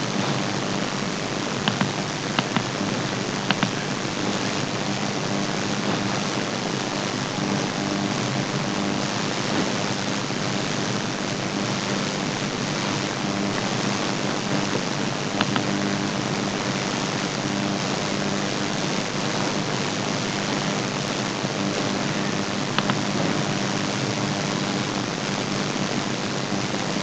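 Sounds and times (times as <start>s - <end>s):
computer fan whirring: 0.0s - 27.0s
faint hum: 0.0s - 27.0s
mouse clicks: 1.6s - 2.7s, 3.4s - 3.8s, 15.4s - 15.7s, 22.8s - 23.0s.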